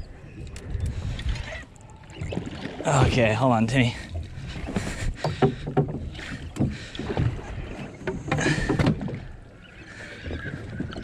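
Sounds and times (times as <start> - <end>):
water slapping boat hull: 0.5 - 11.0
knocks and clatter on deck: 5.2 - 7.4, 8.0 - 9.2.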